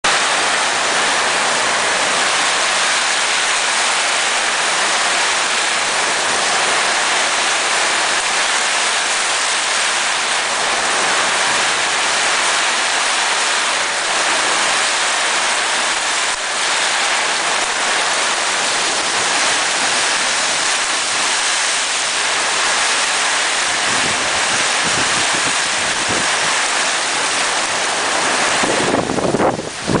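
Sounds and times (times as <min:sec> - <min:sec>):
heavy rain on a metal roof: 0:00.0 - 0:30.0
wind buffeting microphone: 0:23.7 - 0:26.8, 0:27.5 - 0:30.0.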